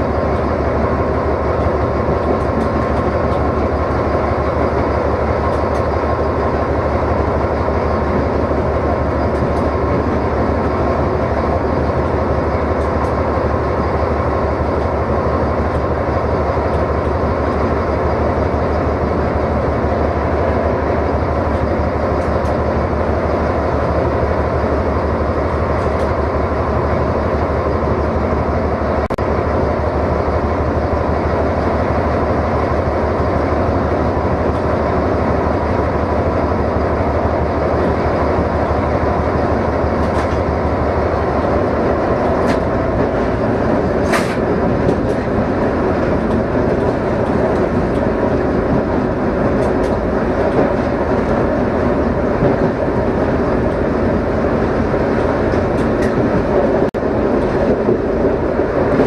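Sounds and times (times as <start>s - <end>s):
diesel locomotive engine drone: 0.0s - 59.0s.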